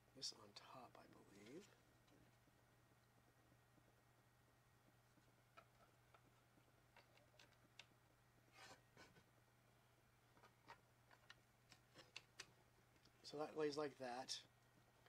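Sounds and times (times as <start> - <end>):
small plastic clicks and rustles: 5.5 - 7.9, 10.3 - 13.2.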